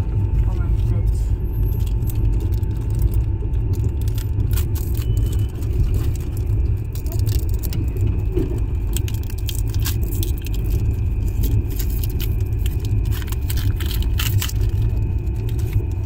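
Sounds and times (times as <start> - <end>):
steady low rumble: 0.0 - 16.0
card packs crinkling and clicking: 0.5 - 16.0.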